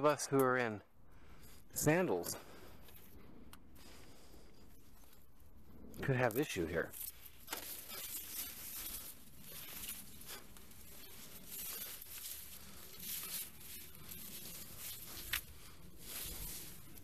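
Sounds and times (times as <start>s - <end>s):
dry grass rustling underfoot: 1.1s - 17.0s.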